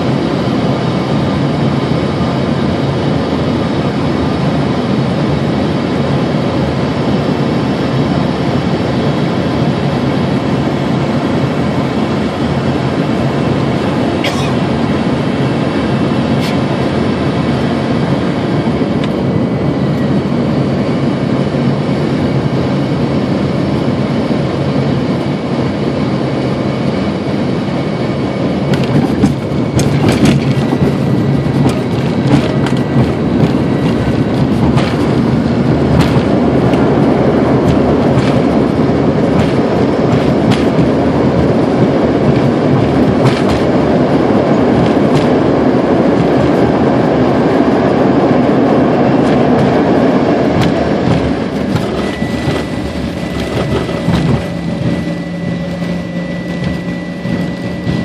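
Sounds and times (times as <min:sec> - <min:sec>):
engine and airflow roar: 0:00.0 - 0:58.0
plane touchdown: 0:00.0 - 0:58.0
wheels rumbling and rattling: 0:27.4 - 0:58.0.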